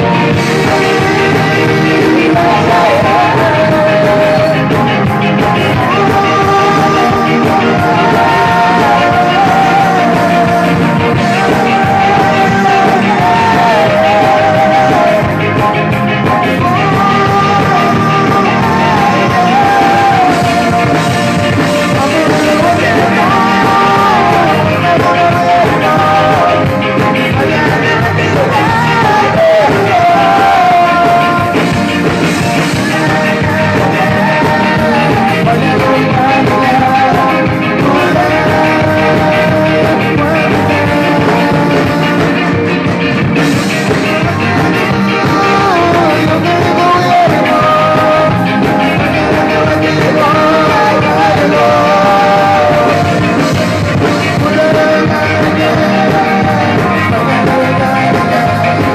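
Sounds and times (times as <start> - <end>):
live band playing: 0.0 - 58.9
man singing into a microphone: 0.0 - 58.9.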